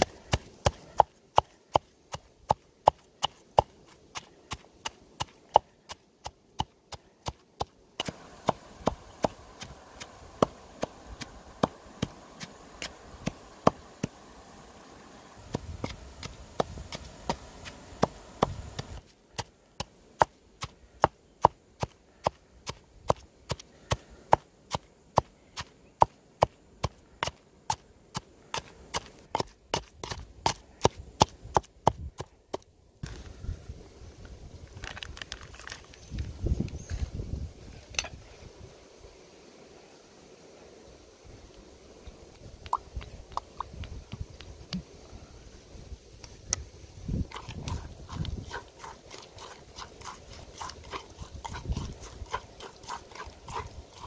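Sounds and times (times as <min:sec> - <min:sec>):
pestle pounding in mortar: 0:00.0 - 0:14.2, 0:15.5 - 0:25.3, 0:47.2 - 0:54.0.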